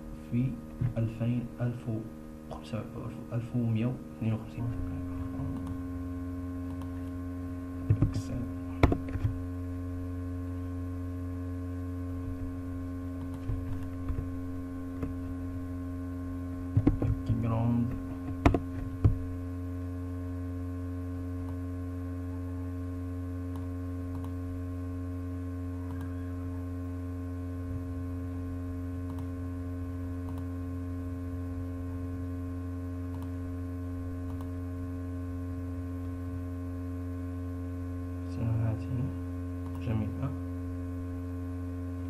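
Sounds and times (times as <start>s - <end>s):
electrical mains hum: 0.0s - 42.0s
sharp clicks: 6.6s - 6.9s, 34.2s - 34.5s.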